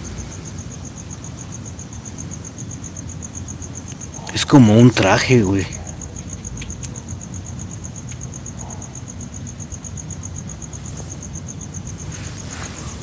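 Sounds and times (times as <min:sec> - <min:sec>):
cricket chirping: 0:00.0 - 0:13.0
low background rumble: 0:00.0 - 0:13.0.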